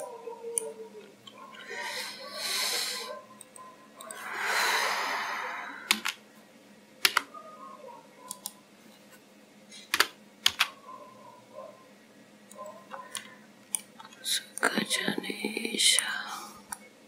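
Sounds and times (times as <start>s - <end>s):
breath into microphone: 4.2s - 6.0s
keyboard and mouse clicks: 5.9s - 6.2s, 7.0s - 7.3s, 8.3s - 8.6s, 9.8s - 10.8s.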